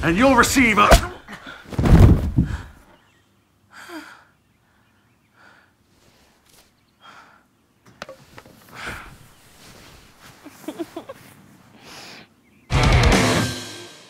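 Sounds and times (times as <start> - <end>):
bedding rustling: 1.6 - 2.8, 8.1 - 11.7.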